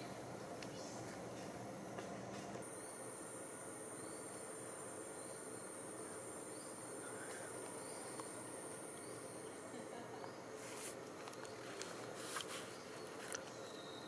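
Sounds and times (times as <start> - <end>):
forest background hum: 0.0 - 14.0.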